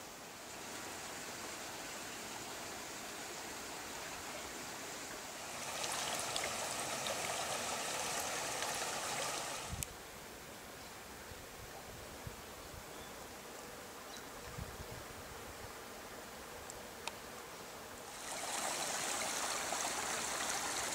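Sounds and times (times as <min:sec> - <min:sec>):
water trickling in a brook: 0:05.4 - 0:09.8, 0:18.1 - 0:20.9.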